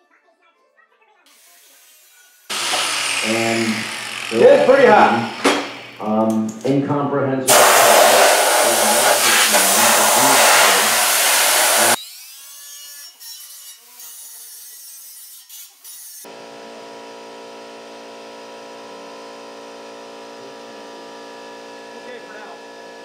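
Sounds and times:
air compressor motor humming: 0:02.5 - 0:06.6, 0:07.5 - 0:12.0, 0:16.3 - 0:23.0
loud rushing noise: 0:07.5 - 0:12.0.

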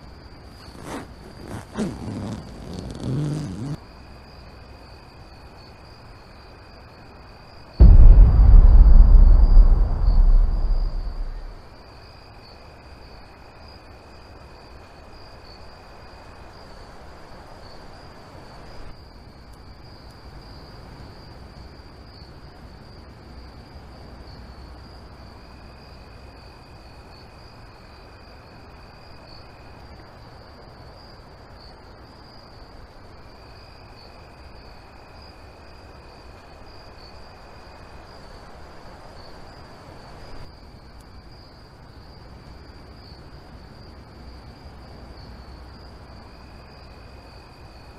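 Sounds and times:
crickets chirping: 0:00.0 - 0:47.9
faint low tone: 0:07.8 - 0:11.6.

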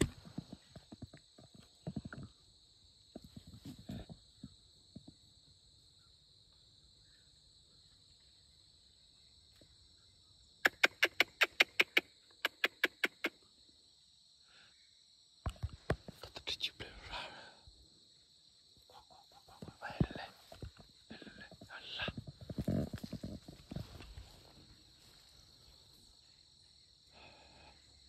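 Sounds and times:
insects droning: 0:00.0 - 0:28.0
sharp chucking bird calls: 0:10.0 - 0:13.6.

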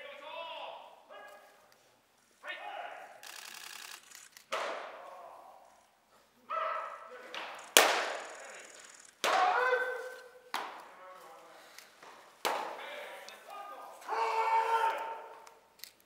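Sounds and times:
short shouted calls: 0:02.4 - 0:03.7, 0:04.9 - 0:10.5, 0:12.8 - 0:15.6
baseballs smacking into mitts: 0:04.5 - 0:05.1, 0:07.3 - 0:08.2, 0:09.2 - 0:11.0, 0:12.0 - 0:13.0.

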